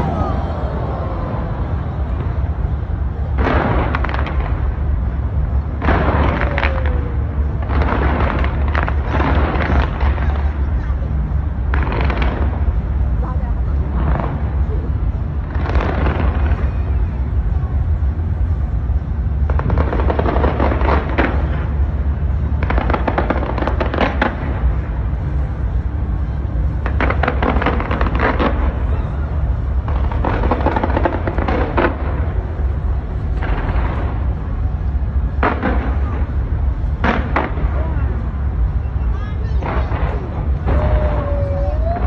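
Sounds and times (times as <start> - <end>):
deep rumble: 0.0 - 42.0
fireworks crackling and popping: 1.7 - 42.0.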